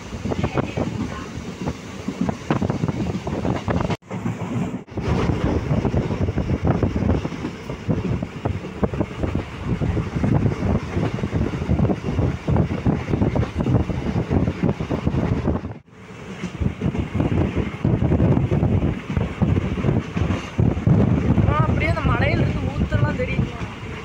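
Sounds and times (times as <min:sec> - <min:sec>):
train rolling rumble: 0:00.0 - 0:24.0.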